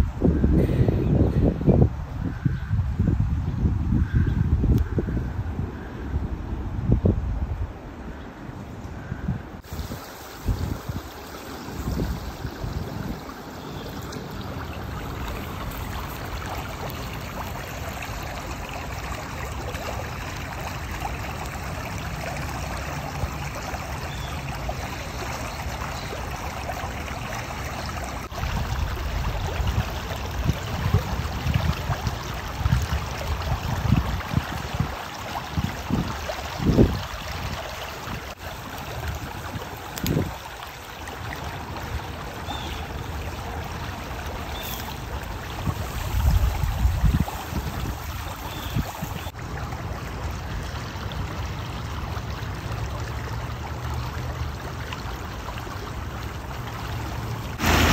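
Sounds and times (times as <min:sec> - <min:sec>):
creek water flowing: 0:00.0 - 0:57.9
low rumbles: 0:57.5 - 0:57.9.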